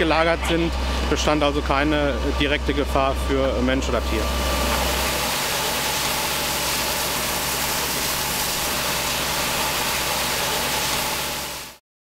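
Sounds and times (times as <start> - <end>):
fire engine running: 0.0 - 11.8.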